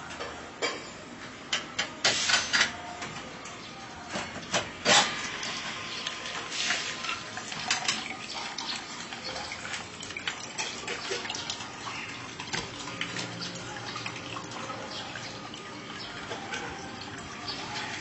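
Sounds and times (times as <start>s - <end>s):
coconut water trickling into cup: 5.2s - 18.0s.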